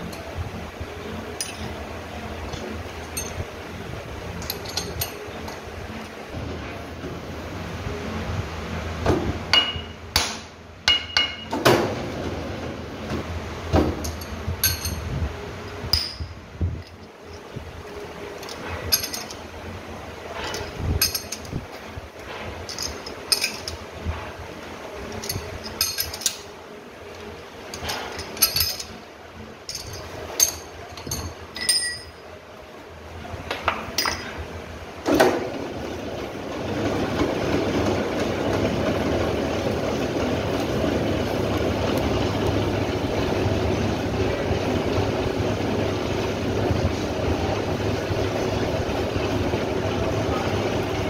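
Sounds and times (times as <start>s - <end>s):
lathe running hum: 34.6s - 51.0s.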